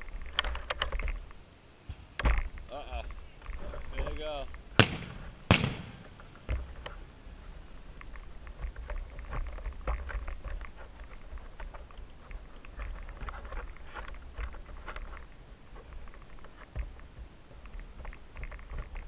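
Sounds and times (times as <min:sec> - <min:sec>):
fireworks popping and crackling: 0:02.4 - 0:06.8.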